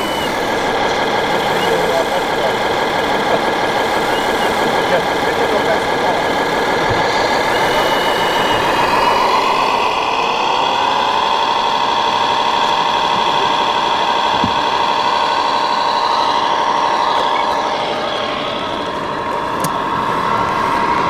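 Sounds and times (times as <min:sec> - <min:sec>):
model motor whine: 0:00.0 - 0:21.0.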